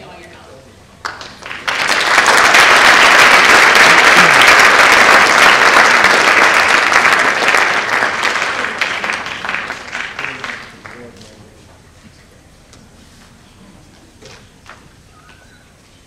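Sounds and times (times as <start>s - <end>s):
audience applauding: 1.0s - 11.2s.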